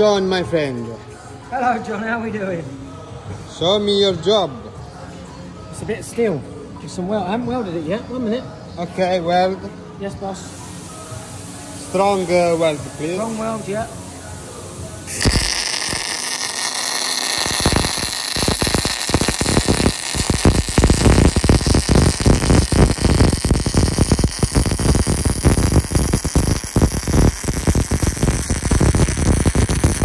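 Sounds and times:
welding arc crackling hiss: 10.8s - 14.0s, 15.1s - 30.0s.

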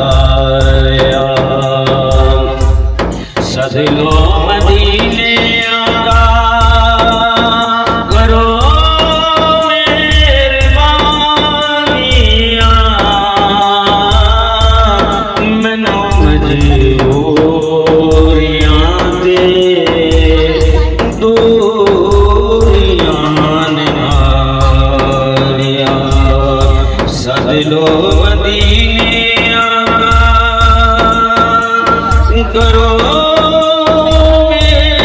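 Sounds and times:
person singing devotional song: 0.0s - 35.0s.

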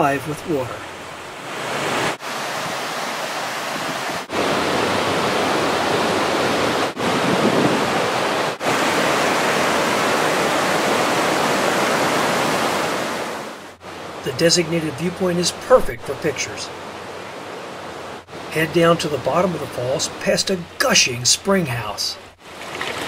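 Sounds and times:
water rushing over rock: 22.4s - 23.0s.

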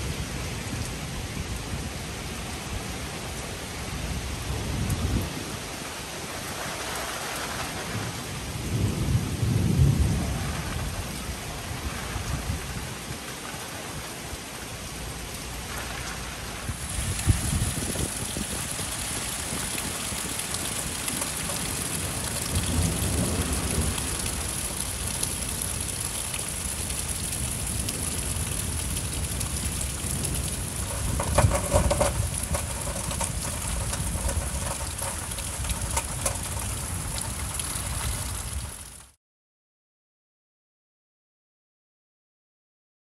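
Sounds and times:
heavy rain pouring: 0.0s - 39.2s
thunder rumbling: 6.5s - 14.0s, 15.8s - 38.9s.

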